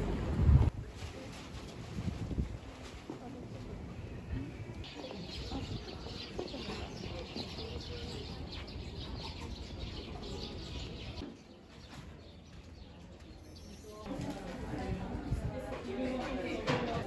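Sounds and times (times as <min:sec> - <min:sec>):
low background murmur: 0:00.0 - 0:17.0
small birds chirping: 0:04.0 - 0:14.1.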